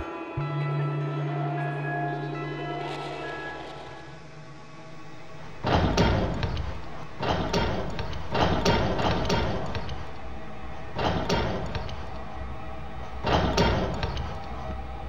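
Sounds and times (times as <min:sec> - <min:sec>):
loud banging on a door: 0:05.6 - 0:10.2, 0:10.8 - 0:12.2, 0:13.2 - 0:14.7.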